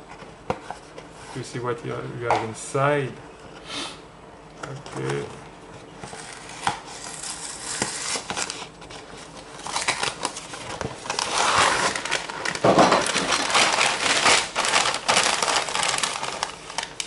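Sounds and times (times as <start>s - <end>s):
cardboard box crinkling and snapping: 6.1s - 17.0s
plastic bag crinkling: 9.5s - 17.0s.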